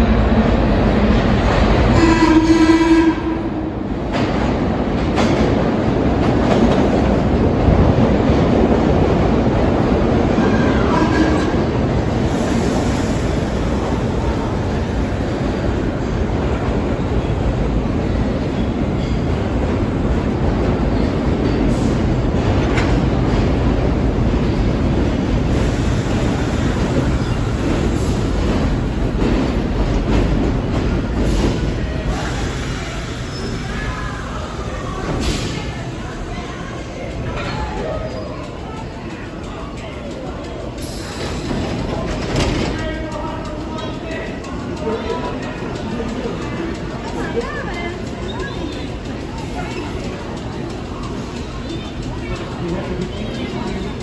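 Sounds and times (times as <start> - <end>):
subway train rumbling past: 0.0 - 54.0
train horn blast: 1.9 - 3.7, 10.5 - 11.6.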